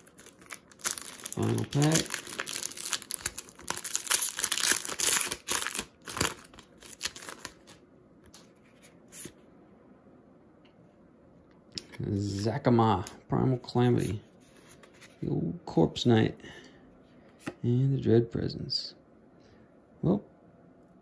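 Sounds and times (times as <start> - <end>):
foil wrapper crinkling and tearing: 0.0 - 7.8.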